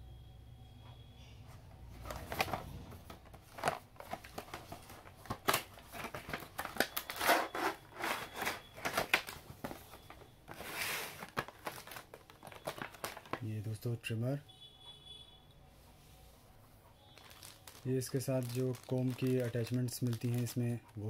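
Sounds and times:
cardboard and plastic rustling: 1.9s - 13.5s, 17.1s - 21.0s.

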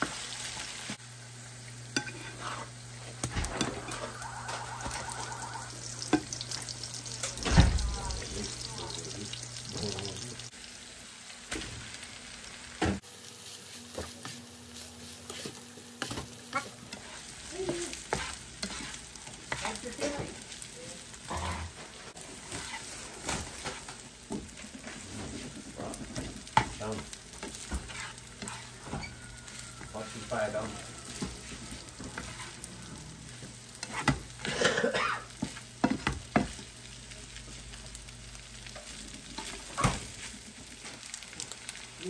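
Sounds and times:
hot fat sizzling: 0.0s - 42.0s
spatula scraping and knocking pan: 15.2s - 19.8s, 27.4s - 29.6s.

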